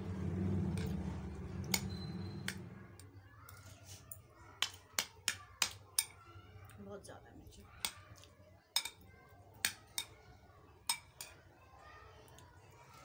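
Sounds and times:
muffled rumble: 0.0 - 3.0.

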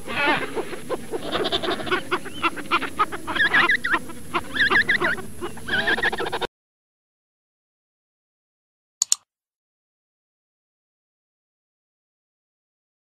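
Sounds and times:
penguins braying: 0.0 - 6.5.

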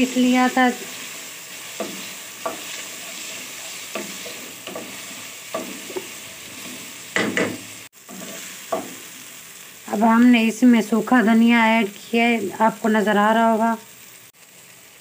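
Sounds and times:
vegetables sizzling in oil: 0.0 - 15.0
spatula scraping a pan: 0.2 - 9.2.

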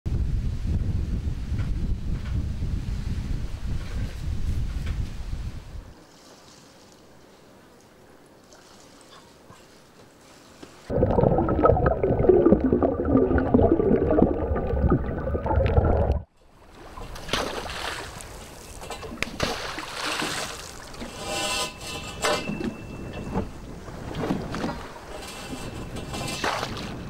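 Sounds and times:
wind: 0.1 - 27.0
water around a boat: 3.6 - 27.0
underwater rumble and bubbling: 10.9 - 16.3.

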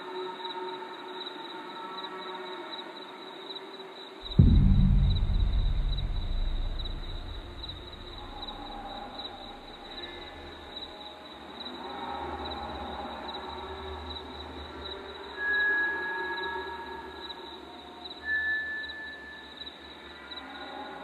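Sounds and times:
deep boom: 4.2 - 10.6
faint sustained tones: 4.2 - 10.6
high pulsing tone: 4.3 - 9.8.

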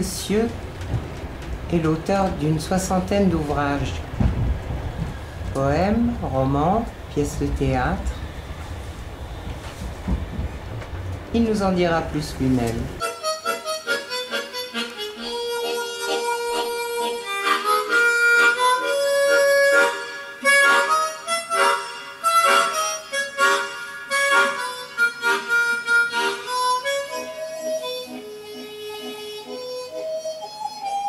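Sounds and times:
instrumental background music: 13.0 - 31.0.

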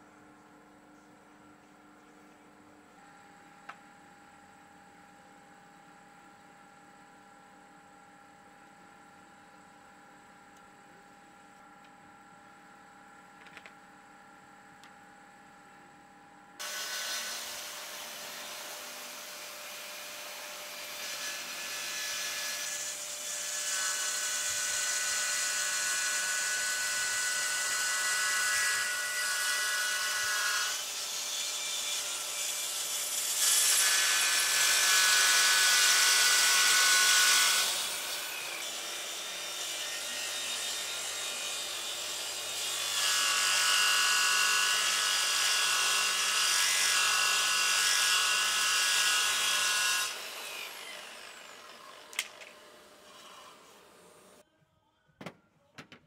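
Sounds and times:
circular saw cutting wood: 16.6 - 54.4.

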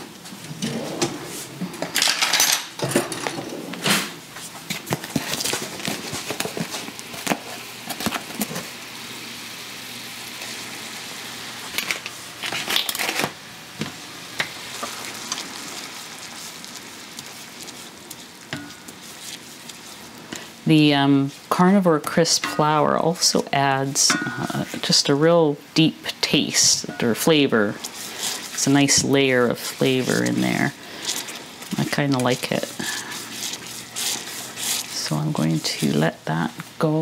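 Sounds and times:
broth simmering hiss: 2.7 - 37.0
spatula scraping pan: 14.7 - 23.0, 26.5 - 36.5.

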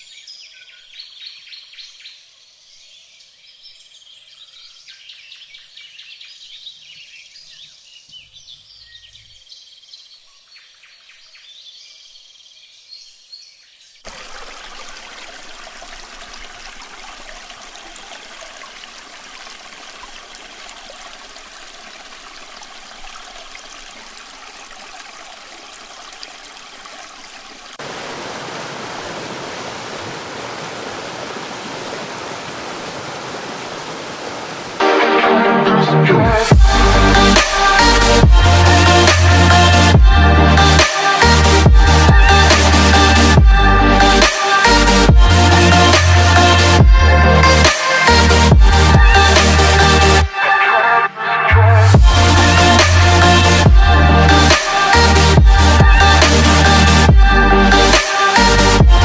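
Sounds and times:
birds chirping: 0.0 - 24.3
insect chirps: 3.7 - 14.2
stream running over rocks: 14.0 - 35.0, 52.0 - 57.1
waterfall pouring into pool: 14.0 - 35.0, 36.6 - 39.9.

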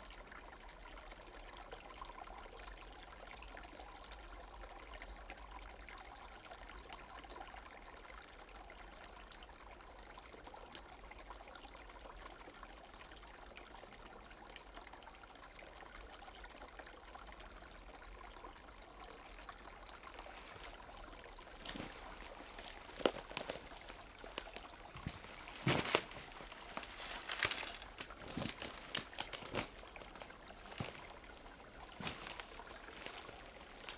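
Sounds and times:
stream trickling: 0.0 - 33.9
sharp crackles and knocks: 21.4 - 33.9.

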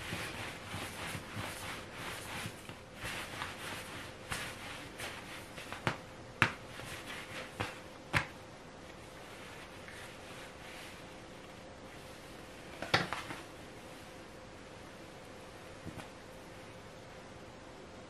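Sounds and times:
hands rubbing dough on wood: 0.0 - 13.5.

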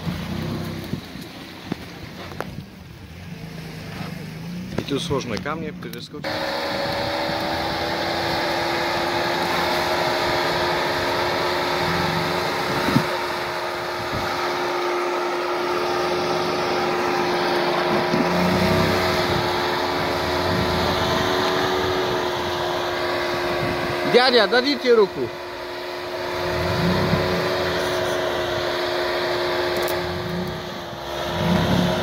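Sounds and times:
steady motor whine: 0.0 - 32.0
low rumble: 9.0 - 24.5.

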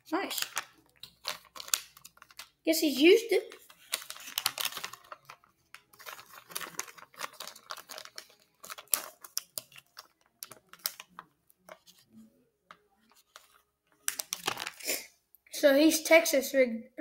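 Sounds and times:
plastic bag crinkling: 0.1 - 12.0, 13.2 - 14.9.

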